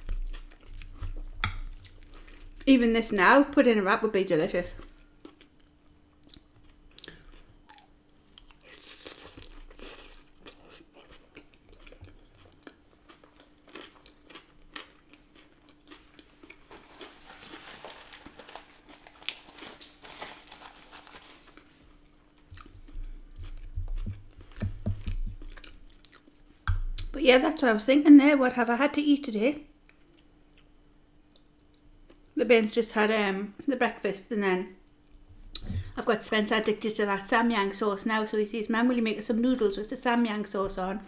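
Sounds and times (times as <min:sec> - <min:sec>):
chewing and crunching salad: 0:00.0 - 0:02.6, 0:04.7 - 0:27.2
faint steady hum: 0:00.0 - 0:41.0.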